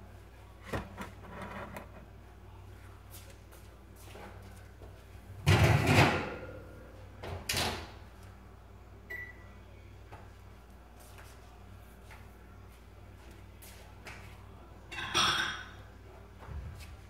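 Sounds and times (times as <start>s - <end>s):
cabinet drawer sliding shut: 0.6s - 2.0s.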